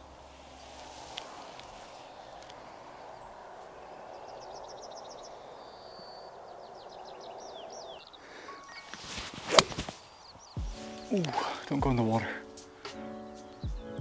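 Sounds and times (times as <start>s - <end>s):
outdoor hiss: 0.0s - 13.6s
bird singing high chirps: 1.3s - 14.0s
golf club striking ball: 9.4s - 9.9s.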